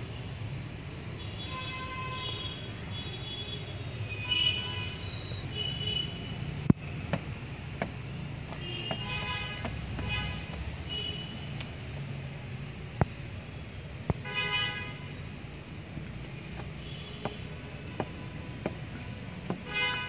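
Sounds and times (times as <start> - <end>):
traffic rumble: 0.0 - 20.0
vehicle horns tooting: 8.5 - 11.5, 14.2 - 15.1, 16.8 - 20.0.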